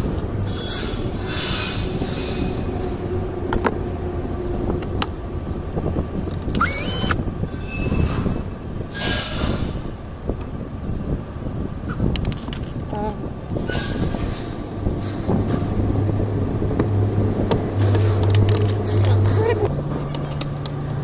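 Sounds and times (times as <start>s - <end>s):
cordless drill whine: 6.6s - 7.2s
sharp clicks of parts handled: 12.0s - 12.9s, 17.5s - 19.3s, 20.0s - 20.8s
rustling and scraping: 13.5s - 15.9s, 17.7s - 20.6s.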